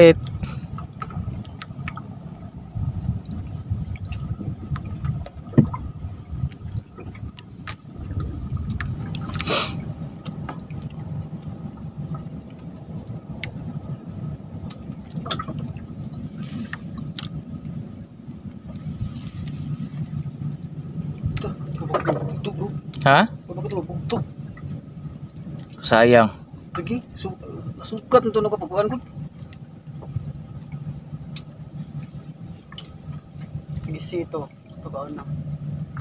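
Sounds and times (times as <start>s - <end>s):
water sloshing and lapping: 0.0s - 36.0s.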